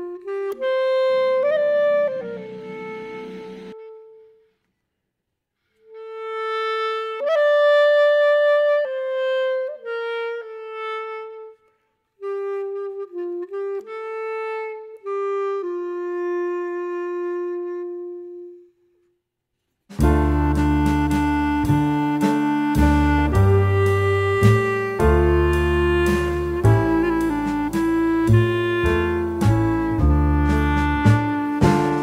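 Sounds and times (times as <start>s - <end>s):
slow solo instrumental melody: 0.0s - 4.2s, 20.0s - 32.0s.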